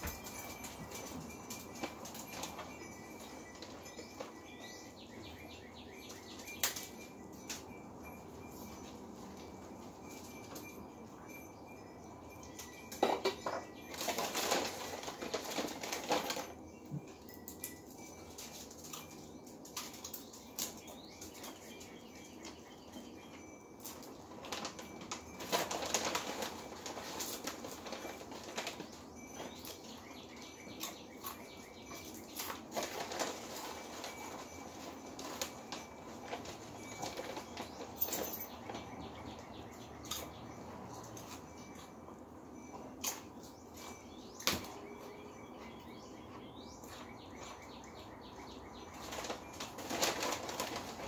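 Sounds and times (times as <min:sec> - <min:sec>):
wires rustling and scraping: 0:12.6 - 0:21.6, 0:23.8 - 0:45.0, 0:48.8 - 0:51.0.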